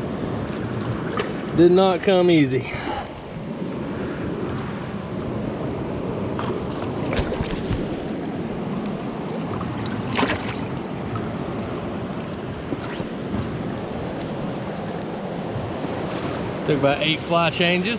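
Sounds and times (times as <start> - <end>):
water splashes: 6.3 - 14.3.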